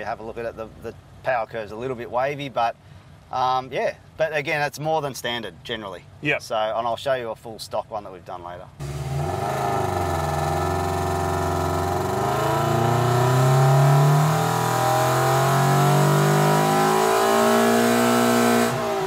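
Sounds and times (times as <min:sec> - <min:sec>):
car engine revving at full throttle: 0:08.8 - 0:19.0.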